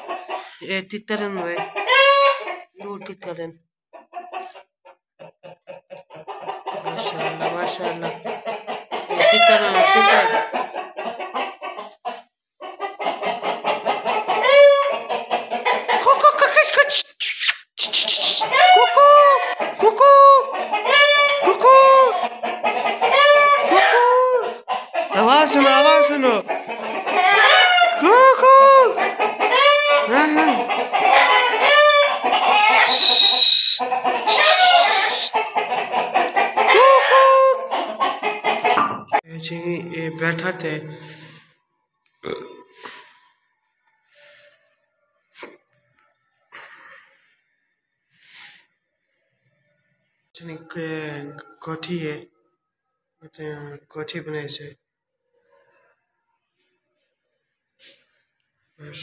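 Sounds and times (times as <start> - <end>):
chickens clucking: 0.0 - 17.1, 17.8 - 41.6
rooster crowing: 27.1 - 28.1.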